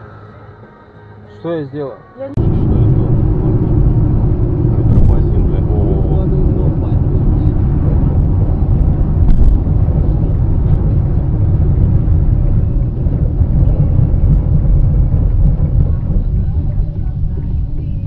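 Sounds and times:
car road and engine noise: 2.3 - 18.0.

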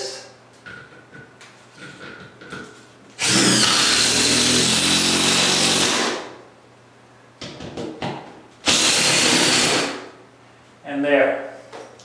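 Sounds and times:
impact driver running: 3.2 - 6.3, 8.6 - 10.0.

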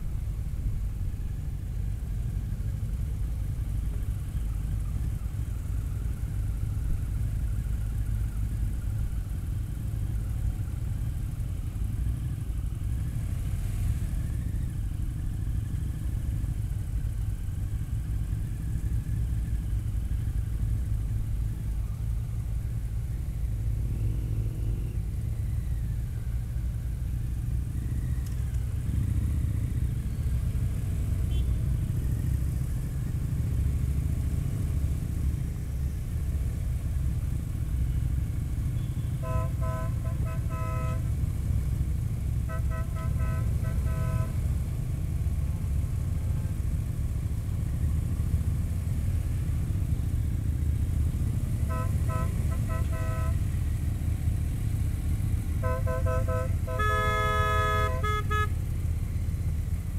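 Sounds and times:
motorcycle engine running: 0.0 - 59.9
horn beeping in quick pulses: 38.8 - 41.1, 42.4 - 44.5, 51.6 - 53.5, 55.6 - 58.6.

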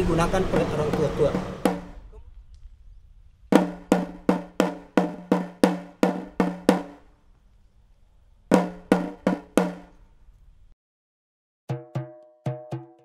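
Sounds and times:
drum strikes: 0.0 - 2.2, 3.5 - 7.0, 8.5 - 9.9, 11.7 - 13.0.

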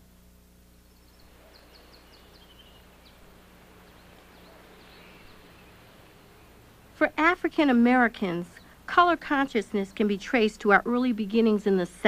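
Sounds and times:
low hum: 0.0 - 11.0
background hiss: 0.0 - 12.0
bird chirping: 0.9 - 6.8.

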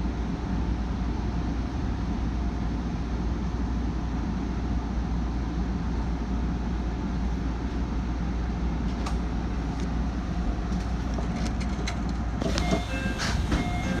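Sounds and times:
electric train low rumble and hum: 0.0 - 14.0.

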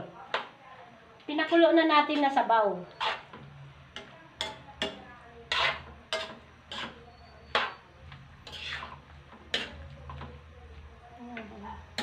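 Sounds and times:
utensil scraping and clinking in wok: 2.9 - 10.3.

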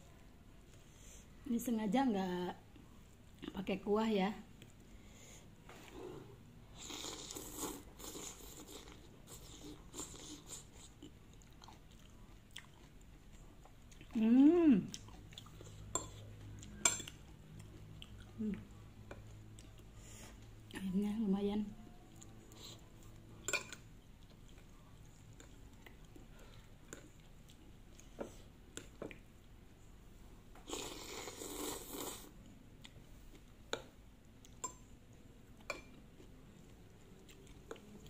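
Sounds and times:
person slurping noodles: 6.0 - 10.7, 30.7 - 32.3
chewing with mouth closed: 6.8 - 14.2, 14.8 - 20.0, 22.1 - 29.3, 35.5 - 38.0.

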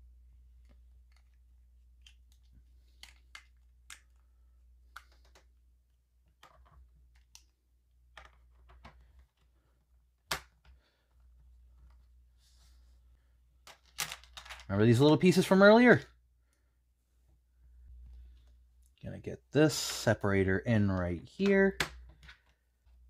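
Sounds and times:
plastic pieces clicking and tapping: 0.6 - 4.3, 4.9 - 5.6, 6.2 - 9.5, 13.6 - 14.7.

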